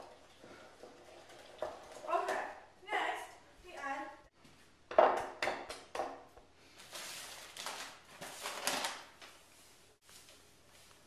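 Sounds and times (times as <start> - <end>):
paper bag rustling: 6.8 - 10.5.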